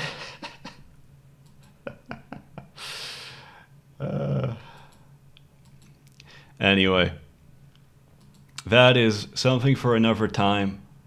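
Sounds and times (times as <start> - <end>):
person breathing out: 2.8 - 3.7
person humming: 4.0 - 4.6.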